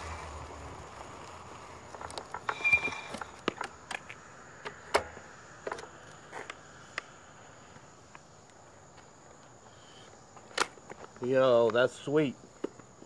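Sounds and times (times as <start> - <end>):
clicks and knocks from scooter: 1.9 - 7.0, 10.4 - 11.8
high electronic beep: 2.5 - 3.4.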